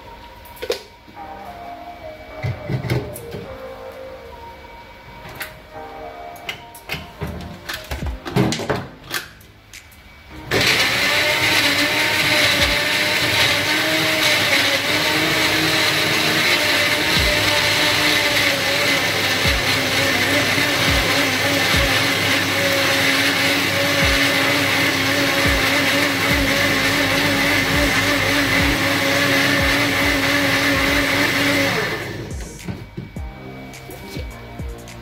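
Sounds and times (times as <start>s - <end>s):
electric mixer grinder running: 10.5s - 32.5s.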